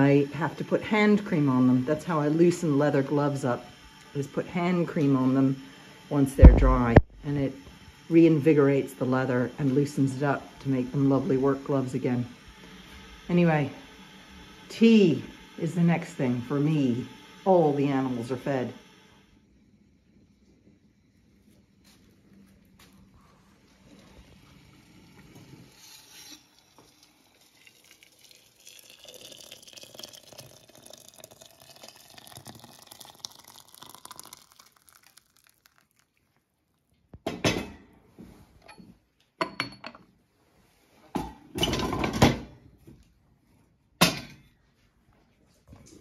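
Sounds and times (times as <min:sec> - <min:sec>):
water pouring into teapot: 0:23.6 - 0:37.0.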